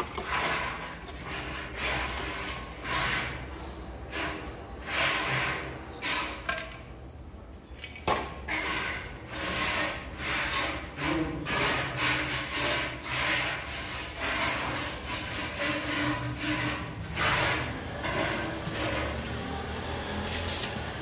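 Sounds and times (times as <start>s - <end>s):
marker scraping on ceramic tile: 8.5s - 19.4s.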